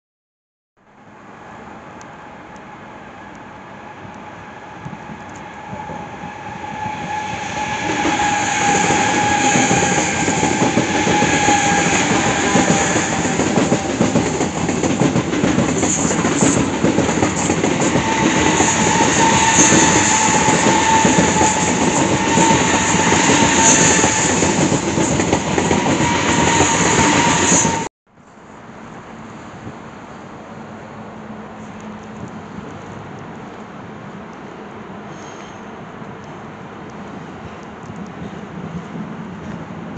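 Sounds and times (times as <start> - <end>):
train rolling past: 1.2 - 27.9.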